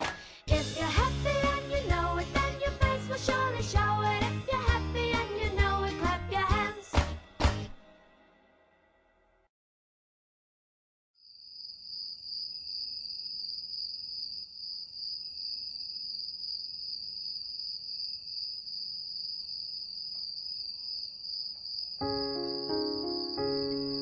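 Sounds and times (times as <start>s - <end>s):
keyboard music: 0.5s - 8.7s, 22.0s - 24.0s.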